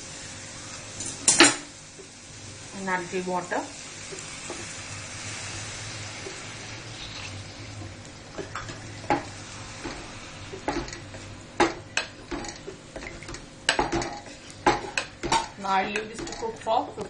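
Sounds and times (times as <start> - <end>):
spoon scraping and knocking pot: 8.4 - 16.7.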